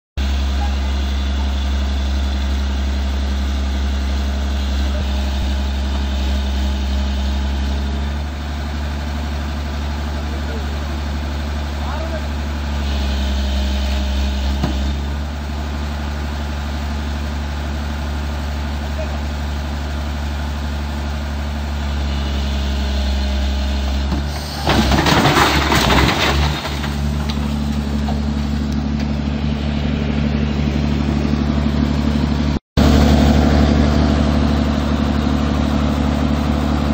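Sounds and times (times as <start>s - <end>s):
excavator diesel engine running: 0.2s - 36.9s
loud crash of machine tipping: 24.2s - 27.6s.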